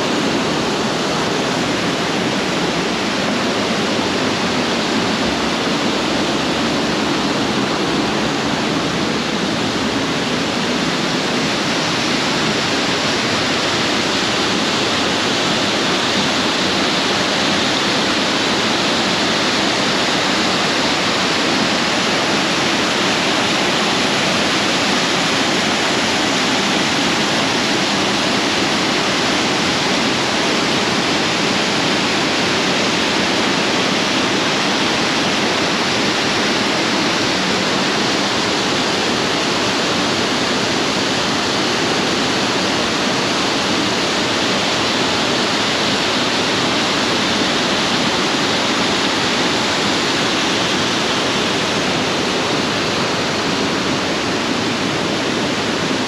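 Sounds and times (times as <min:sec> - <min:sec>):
waterfall rushing: 0:00.0 - 0:56.0.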